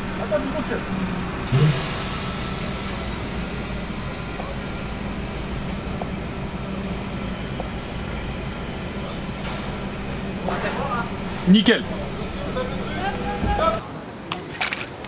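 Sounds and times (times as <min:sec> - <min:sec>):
bus engine running: 0:00.0 - 0:13.8
air brake hiss: 0:01.5 - 0:05.3.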